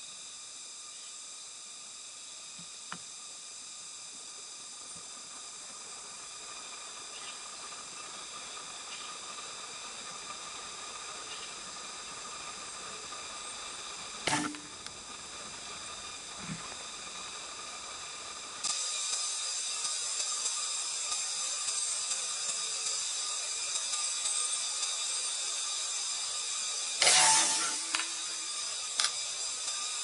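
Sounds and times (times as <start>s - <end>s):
faint high whine: 0.0s - 30.0s
steady high hiss: 0.0s - 30.0s
sharp knock: 14.3s - 14.7s.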